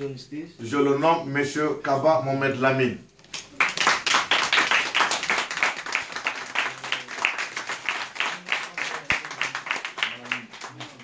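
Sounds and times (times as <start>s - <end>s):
group applauding: 3.3s - 11.0s.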